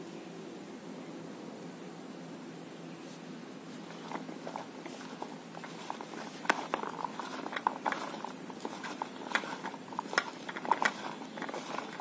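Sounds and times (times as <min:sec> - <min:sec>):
soft squishing: 0:03.7 - 0:12.0.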